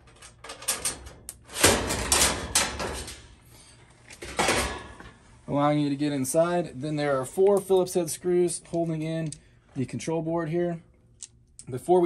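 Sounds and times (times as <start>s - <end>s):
metal panel rattling and scraping: 0.0s - 3.3s.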